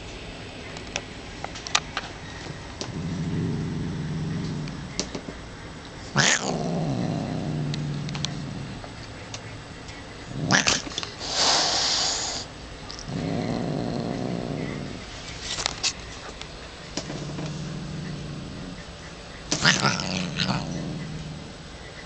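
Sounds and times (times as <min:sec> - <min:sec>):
cat growling: 0:02.8 - 0:05.0, 0:06.1 - 0:09.0, 0:10.2 - 0:15.1, 0:17.0 - 0:21.8
cat hissing: 0:06.1 - 0:08.9, 0:10.4 - 0:15.1, 0:19.5 - 0:21.6.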